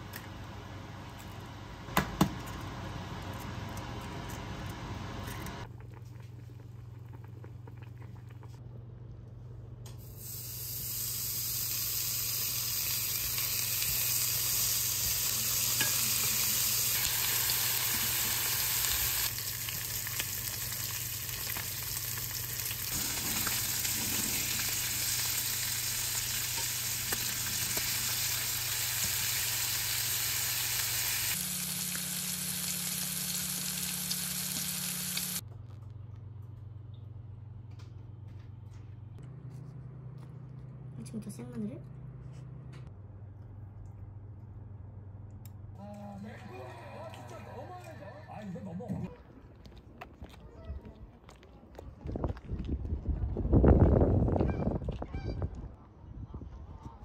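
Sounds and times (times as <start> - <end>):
pork sizzling in a frying pan: 10.2 - 35.4.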